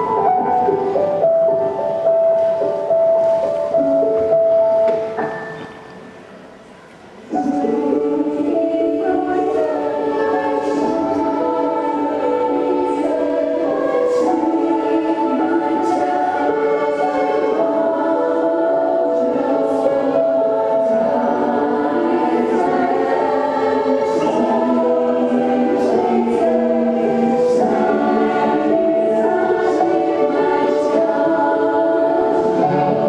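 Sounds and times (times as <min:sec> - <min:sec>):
women's choir singing: 0:07.3 - 0:33.0.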